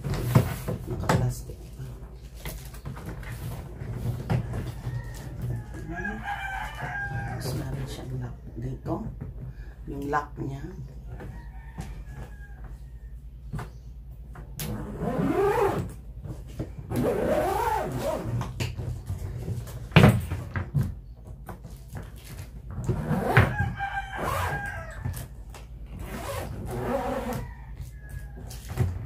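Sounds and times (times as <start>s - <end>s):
rooster crowing: 4.3s - 8.0s, 11.1s - 13.3s, 23.2s - 25.4s, 26.8s - 29.0s.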